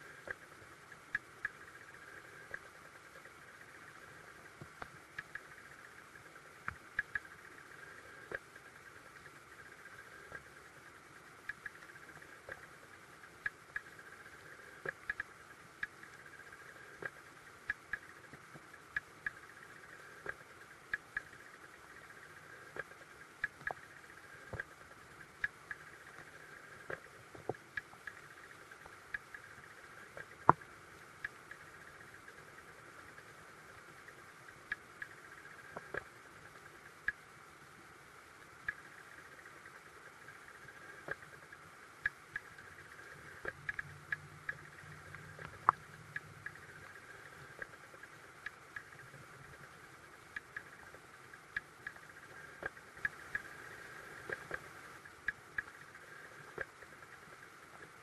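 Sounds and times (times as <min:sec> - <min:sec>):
sharp underwater clicks: 0:00.0 - 0:37.5, 0:38.2 - 0:58.0
underwater creek hiss: 0:46.4 - 0:58.0.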